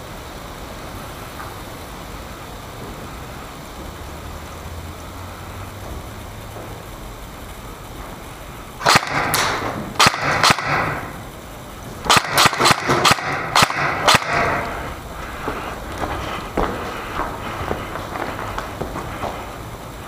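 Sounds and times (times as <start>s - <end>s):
airsoft gun shots: 8.8s - 11.3s, 12.0s - 15.0s.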